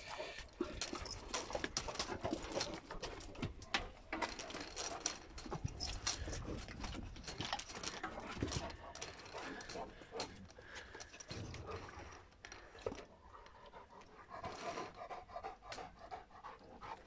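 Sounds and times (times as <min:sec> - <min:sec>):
leash chain rattling: 0:00.5 - 0:11.6.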